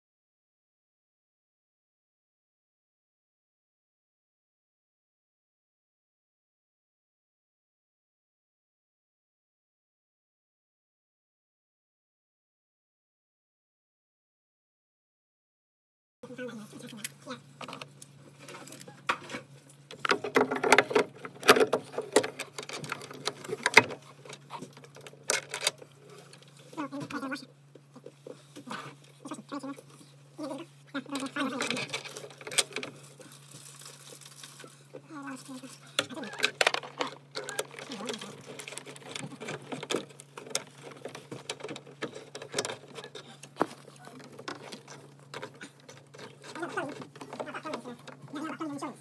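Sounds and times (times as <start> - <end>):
steady low hum: 16.2 - 49.0
clicks knocks and rustling: 18.5 - 26.5, 36.0 - 48.4.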